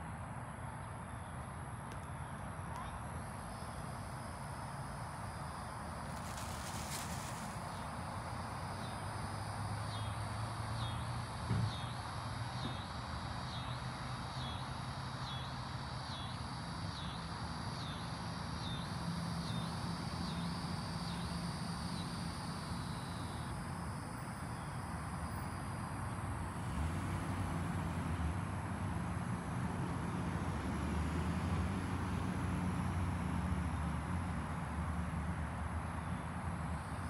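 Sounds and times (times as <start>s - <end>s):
soft hiss: 5.9s - 8.3s.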